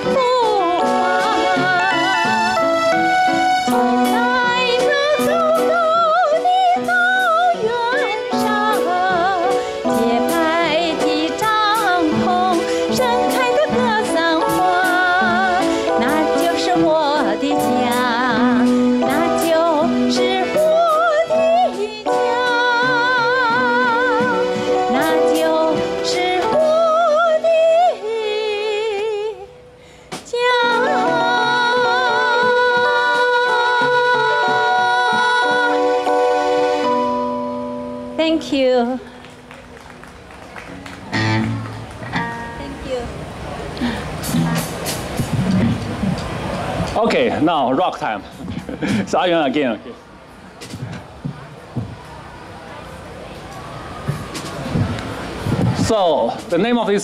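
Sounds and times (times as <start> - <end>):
woman singing with vibrato: 0.0 - 39.2
electric keyboard chords: 0.0 - 56.2
bass: 39.2 - 47.6
drum kit: 43.8 - 47.3.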